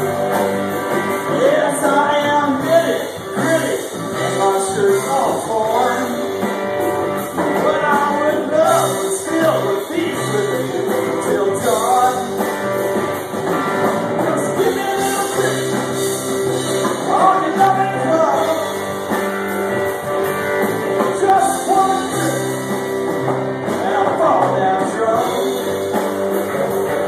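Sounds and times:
drums: 0.0 - 27.0
electric guitars: 0.0 - 27.0
person singing: 1.2 - 6.5, 7.4 - 12.6, 14.2 - 18.9, 21.0 - 22.9, 23.7 - 25.9.

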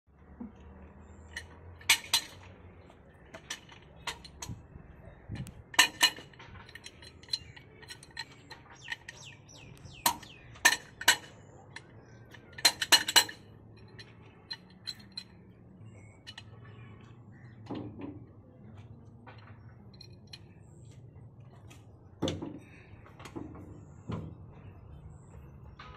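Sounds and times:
birds chirping: 0.5 - 25.9
metallic clinks and taps: 1.2 - 4.6, 5.3 - 17.0, 19.2 - 21.5.

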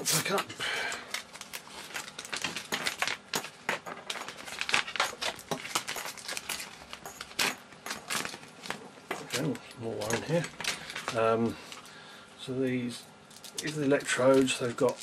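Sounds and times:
packaging tearing and crinkling: 1.1 - 11.3, 13.4 - 15.0.

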